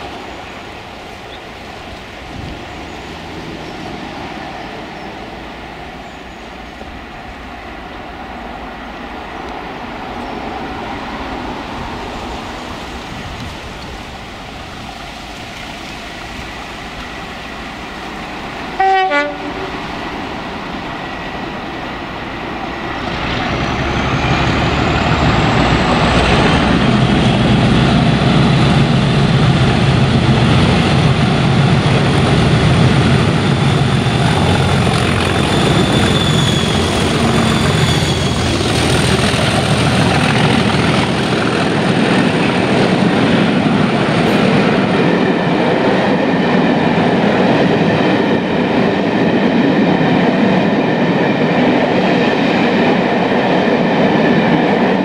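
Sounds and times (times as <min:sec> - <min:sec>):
diesel locomotives passing: 0:00.0 - 0:55.0
train coaches running by: 0:00.0 - 0:55.0
locomotive horn blast: 0:18.8 - 0:19.8.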